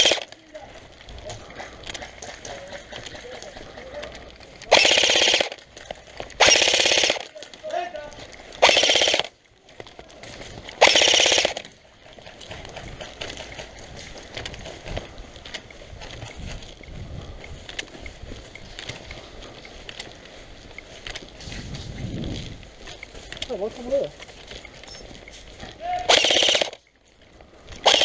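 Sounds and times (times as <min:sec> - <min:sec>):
airsoft rifle full-auto bursts: 0:00.0 - 0:00.3, 0:04.7 - 0:05.6, 0:06.4 - 0:07.3, 0:08.6 - 0:09.4, 0:10.8 - 0:11.7, 0:26.0 - 0:26.8, 0:27.8 - 0:28.0
scuffing and rustling: 0:11.7 - 0:26.0.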